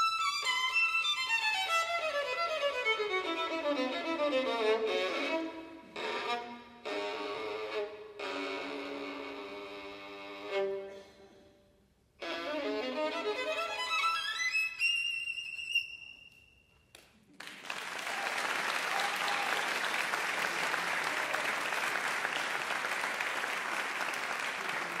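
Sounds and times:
solo violin: 0:00.0 - 0:11.4, 0:12.2 - 0:16.1
audience applause: 0:17.3 - 0:25.0.

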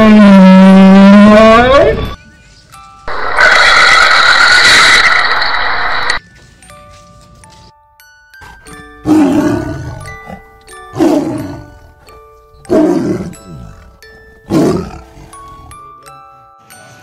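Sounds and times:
background music with chimes: 0:02.1 - 0:03.1, 0:06.2 - 0:17.0
tiger roaring: 0:09.0 - 0:10.1, 0:12.7 - 0:13.8, 0:14.5 - 0:15.7.

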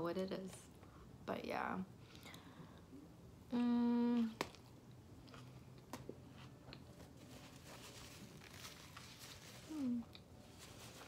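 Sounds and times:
closed-mouth hum: 0:02.2 - 0:04.6.

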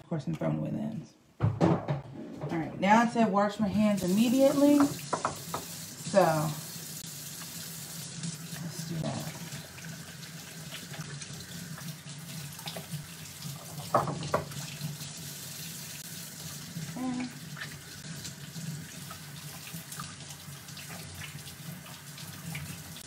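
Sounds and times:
sharp knocks: 0:01.4 - 0:02.6
faucet running into sink: 0:04.0 - 0:23.0.

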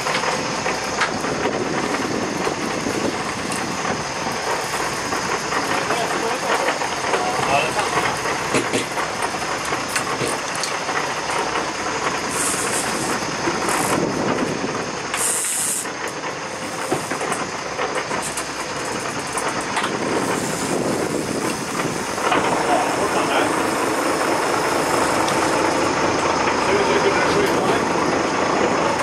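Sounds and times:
wind and water rushing: 0:00.0 - 0:05.8, 0:19.7 - 0:26.6
boat engine drone: 0:00.0 - 0:29.0.

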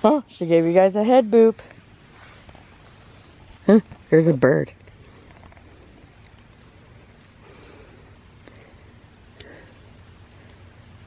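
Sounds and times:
small bird chirping: 0:02.2 - 0:11.0.

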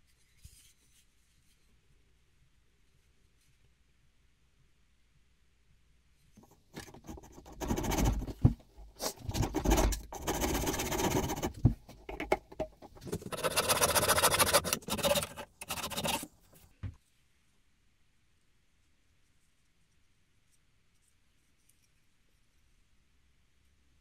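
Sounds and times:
saw cutting through wood: 0:13.0 - 0:16.3.

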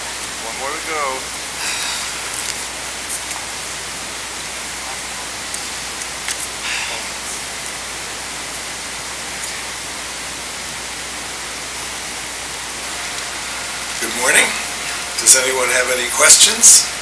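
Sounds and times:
recording noise hiss: 0:00.0 - 0:17.0
faint clicks and rustles: 0:01.6 - 0:07.5.

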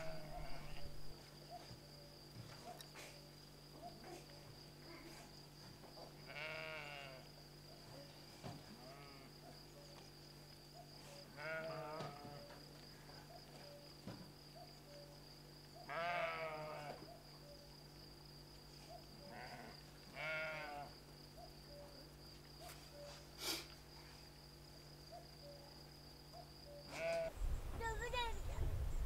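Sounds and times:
sheep bleating: 0:00.0 - 0:01.0, 0:06.3 - 0:07.2, 0:11.4 - 0:12.4, 0:15.9 - 0:17.0, 0:19.3 - 0:20.9, 0:26.9 - 0:27.3.

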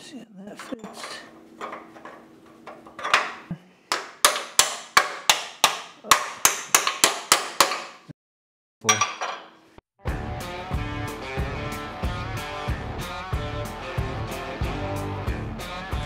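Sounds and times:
hammer striking steel plate: 0:03.0 - 0:08.1.

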